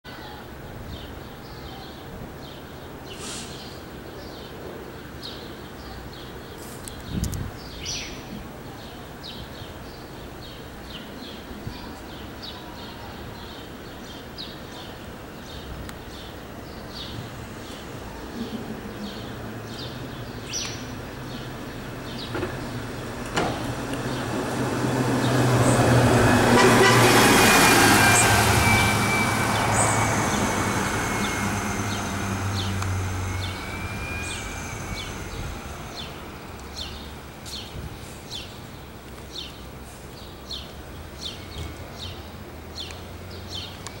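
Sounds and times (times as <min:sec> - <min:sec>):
birds chirping: 0:00.3 - 0:44.0
bus engine hum: 0:16.3 - 0:40.1
high whine: 0:25.6 - 0:37.4.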